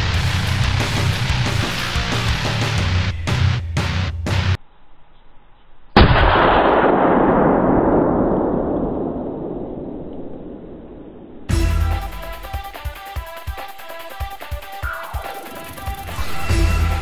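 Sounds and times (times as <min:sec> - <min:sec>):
music: 0:00.0 - 0:04.6, 0:11.5 - 0:17.0
gunshot with rolling echo: 0:06.0 - 0:11.5.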